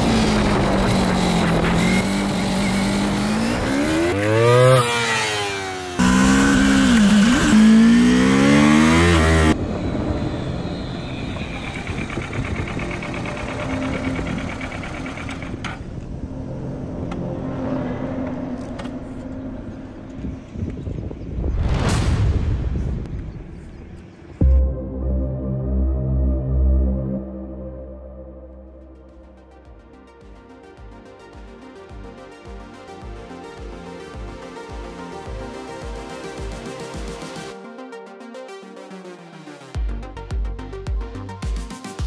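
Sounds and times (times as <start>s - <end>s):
motorcycle engine revving: 0.0s - 15.9s.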